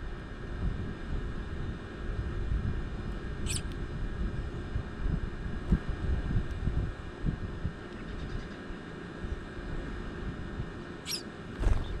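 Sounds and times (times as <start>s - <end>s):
wind buffeting microphone: 0.0s - 8.4s, 11.6s - 12.0s
high wavering chirp: 3.5s - 3.7s, 11.0s - 11.3s.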